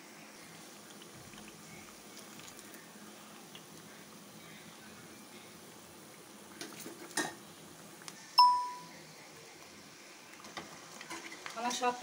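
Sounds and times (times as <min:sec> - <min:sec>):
faint oil sizzle: 0:00.0 - 0:12.0
notification ding: 0:08.4 - 0:08.9.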